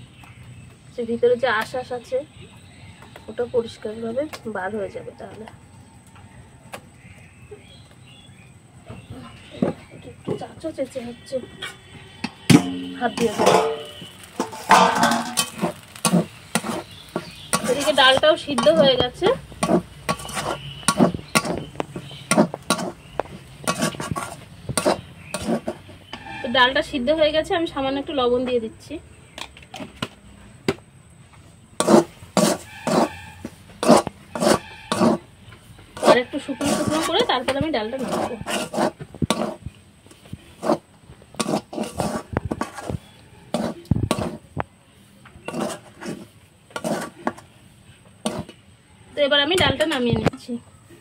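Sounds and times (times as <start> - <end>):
metal spoon scraping cooking pot: 11.5 - 26.8, 31.8 - 39.7, 40.5 - 44.5, 45.4 - 47.5, 48.2 - 48.6.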